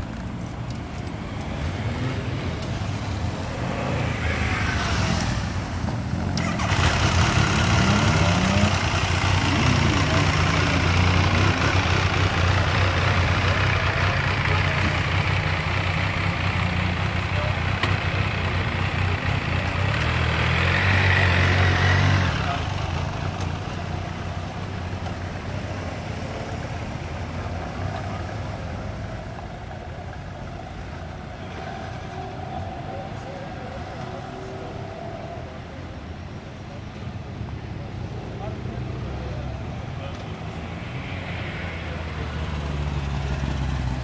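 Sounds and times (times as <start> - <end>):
motorcycle engines idling: 0.0 - 34.8
motorcycles revving and pulling away: 0.0 - 44.0.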